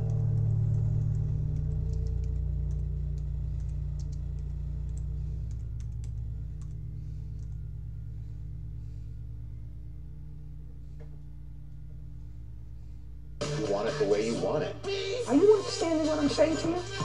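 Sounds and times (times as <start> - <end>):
keyboard typing: 0.0 - 6.8
background music: 13.4 - 17.0.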